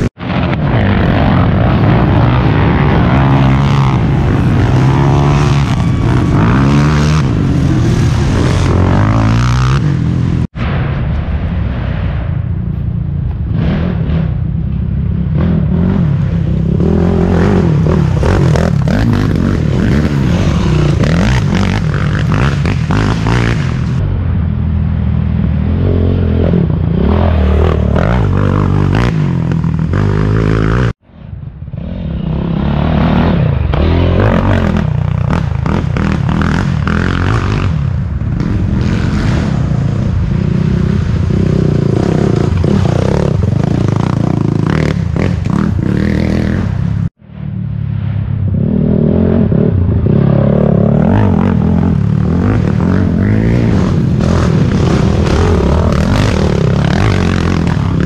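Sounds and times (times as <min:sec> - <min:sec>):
quad engines revving: 0:00.0 - 0:10.5, 0:15.4 - 0:24.0, 0:25.8 - 0:31.0, 0:50.5 - 0:58.0.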